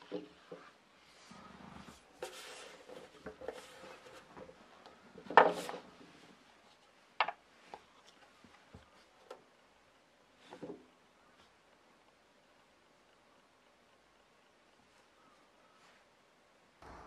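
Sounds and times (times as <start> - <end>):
rustling scrape: 0.4 - 4.6.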